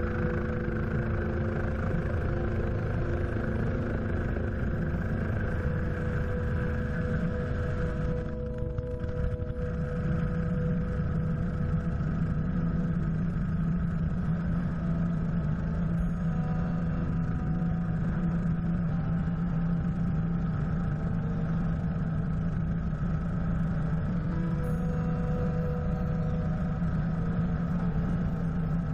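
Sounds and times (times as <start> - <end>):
helicopter turbine and rotor drone: 0.0 - 28.9.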